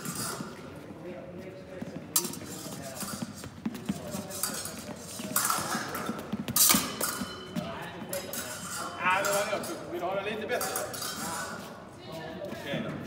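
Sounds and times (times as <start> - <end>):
fencing blades clicking and sliding: 0.0 - 0.6, 2.2 - 11.8.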